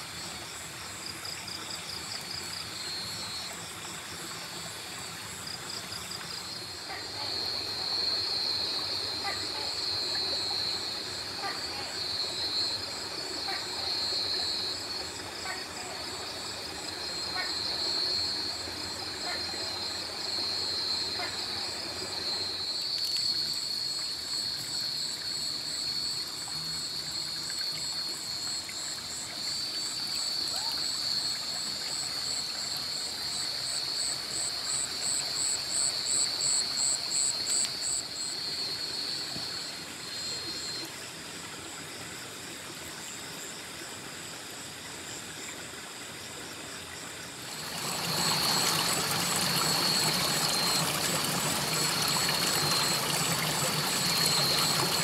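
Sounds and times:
rocky stream running: 0.0 - 55.0
insects rapid pulsing chirp: 33.4 - 40.9, 47.3 - 55.0
insects high trill: 47.6 - 55.0.

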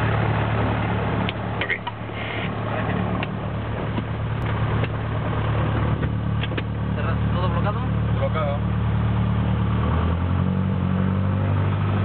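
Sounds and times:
piston aircraft engine droning: 0.0 - 12.0.

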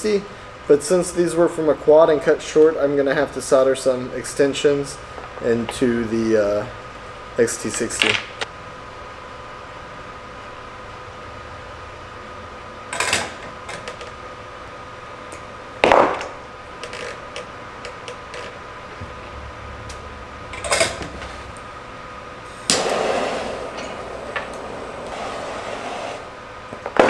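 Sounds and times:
faint hum: 0.0 - 27.0
torch lighter hissing: 22.4 - 26.4.

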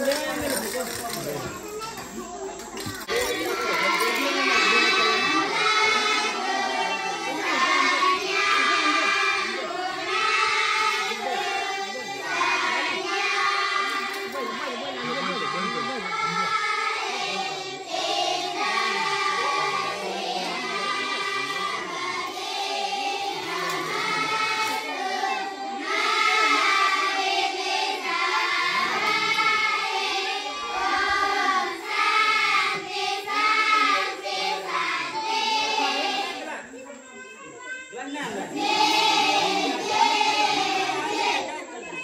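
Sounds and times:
group singing with music: 3.1 - 14.6.

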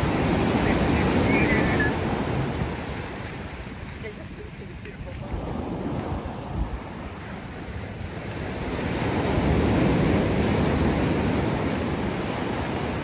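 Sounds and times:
ocean waves breaking on beach: 0.0 - 13.0.

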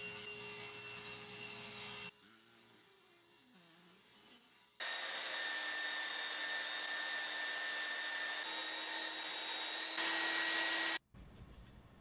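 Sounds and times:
belt sander running: 4.8 - 11.0.

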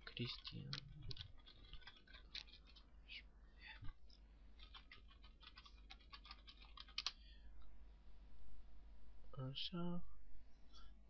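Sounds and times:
keyboard typing clicks: 4.6 - 7.2.

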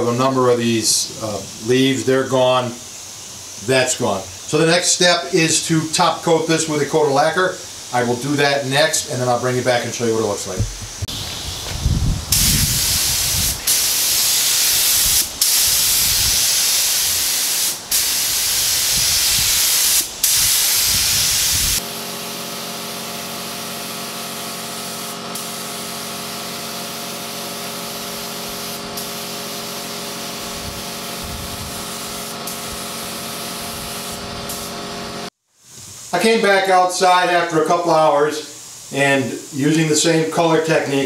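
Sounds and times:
spray gun hissing: 0.1 - 41.0
machine hum: 10.2 - 12.8.

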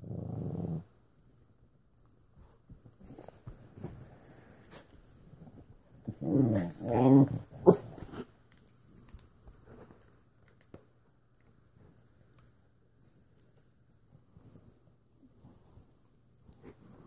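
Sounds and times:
puppy growling: 0.0 - 1.0, 6.0 - 8.3
faint clicks and rustling: 8.0 - 17.0.

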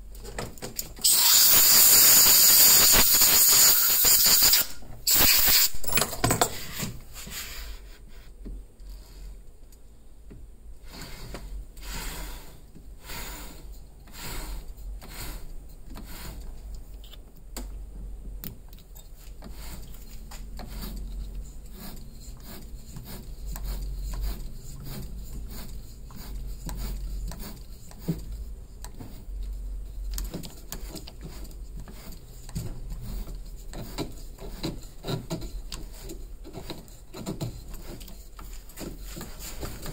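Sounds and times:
loud air hiss: 1.0 - 5.8
metal scraping on wood: 2.9 - 7.9, 19.4 - 39.9.

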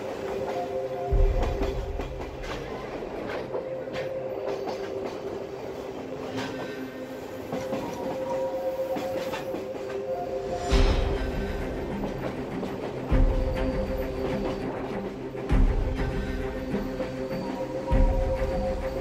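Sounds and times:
train wheels clicking over rail joints: 0.0 - 19.0
steady drone: 9.6 - 19.0.

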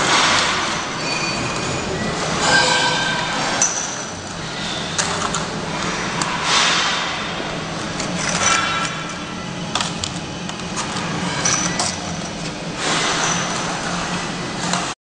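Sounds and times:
mechanism clicks and clinks: 0.0 - 7.1, 7.8 - 13.8
machine motor hum: 0.0 - 15.0.

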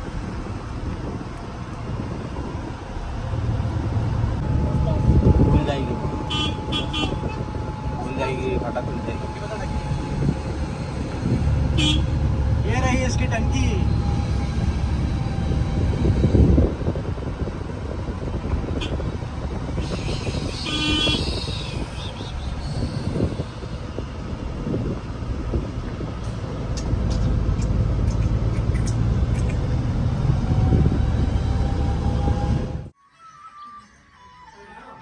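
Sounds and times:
road rumble: 0.0 - 33.0.

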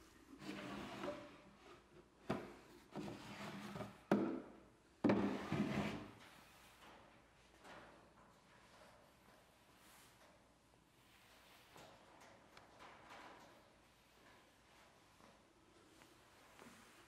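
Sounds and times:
wooden drawer scraping: 5.1 - 6.2.

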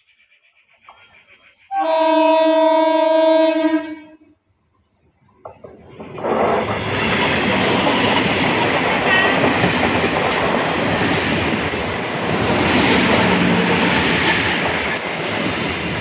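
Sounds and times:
train passing at speed: 5.4 - 16.0.

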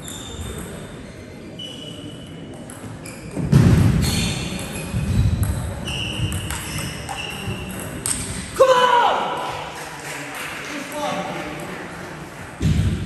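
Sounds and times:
shoes squeaking on floor: 0.0 - 8.2.

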